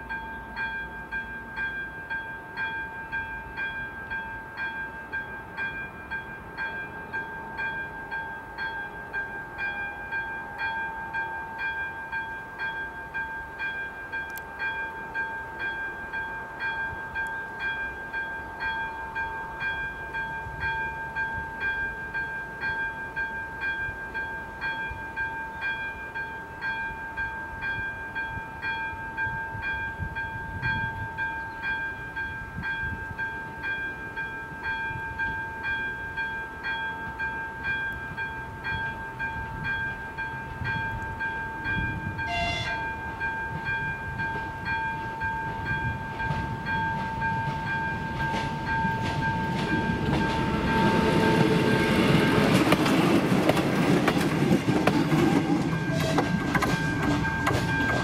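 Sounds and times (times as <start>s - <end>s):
level crossing warning bell: 0.0s - 53.4s, 54.4s - 58.0s
railcar engine and wheel noise: 0.0s - 58.0s
train horn blast: 42.2s - 43.0s, 55.3s - 57.6s.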